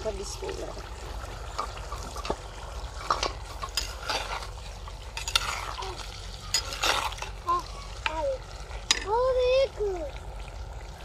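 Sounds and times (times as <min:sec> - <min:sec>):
meat sizzling: 0:00.0 - 0:10.9
spoon scraping clay pot: 0:03.0 - 0:05.8, 0:06.4 - 0:07.4.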